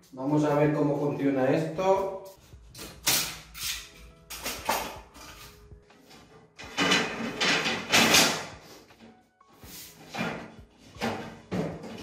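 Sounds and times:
wooden slats clattering: 6.6s - 8.6s.

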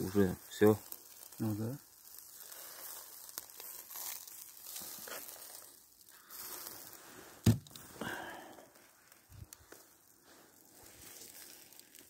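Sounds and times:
meat sizzling on grill: 0.0s - 12.0s
sharp knock: 7.5s - 7.7s.

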